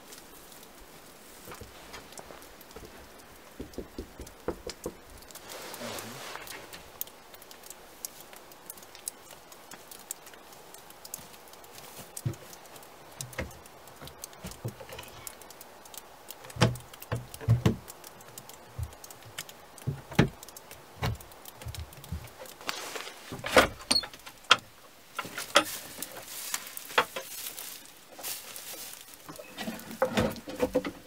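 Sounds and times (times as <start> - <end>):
rustling: 0.0 - 3.6, 4.9 - 31.0
wooden boards knocking: 3.5 - 5.1, 16.6 - 17.9
footsteps through straw: 5.3 - 7.0, 22.5 - 23.5, 25.2 - 30.1.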